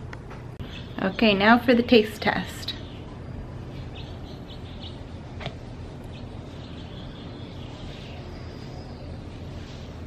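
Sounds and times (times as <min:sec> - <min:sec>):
low background hum: 0:00.0 - 0:10.0
faint bird chirps: 0:02.7 - 0:05.3, 0:06.1 - 0:10.0.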